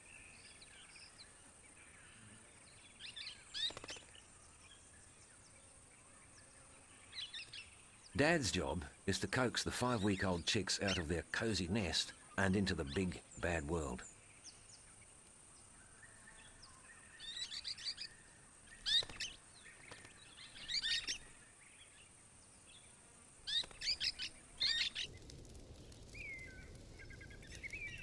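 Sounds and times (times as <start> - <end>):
faint falling bird calls: 3.5 - 4.2, 18.7 - 21.2.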